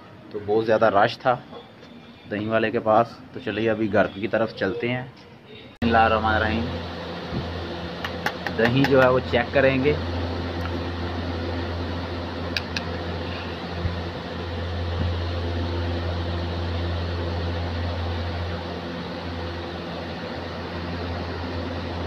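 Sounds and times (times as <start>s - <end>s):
electric motor hum: 5.8s - 22.0s.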